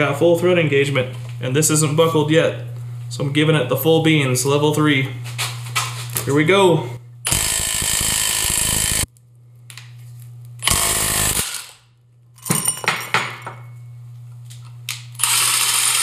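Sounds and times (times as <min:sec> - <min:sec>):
impact wrench hammering: 0:07.3 - 0:09.1.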